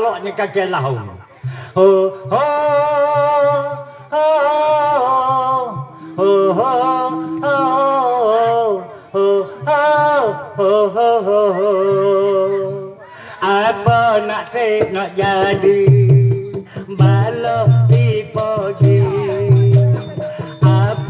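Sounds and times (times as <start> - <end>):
man singing unaccompanied: 0.0 - 21.0
singer breathing: 1.2 - 1.8, 5.9 - 6.2, 13.0 - 13.5, 16.6 - 17.0.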